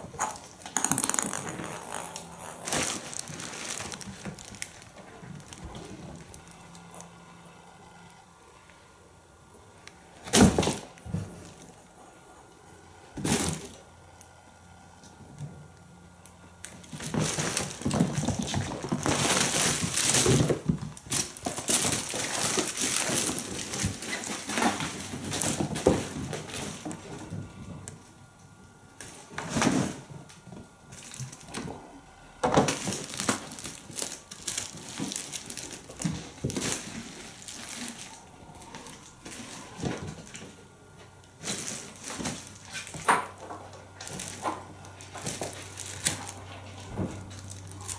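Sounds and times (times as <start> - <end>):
fabric tunnel rustling and crinkling: 1.7 - 6.6, 32.8 - 40.4.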